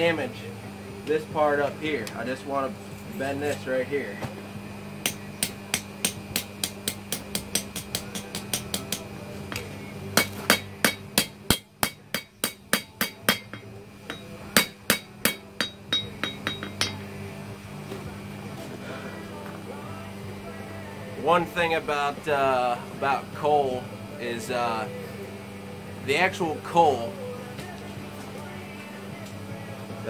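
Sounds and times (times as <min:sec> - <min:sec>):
hammer striking steel on anvil: 0:05.0 - 0:09.6, 0:10.2 - 0:17.1
anvil ringing: 0:10.2 - 0:17.1.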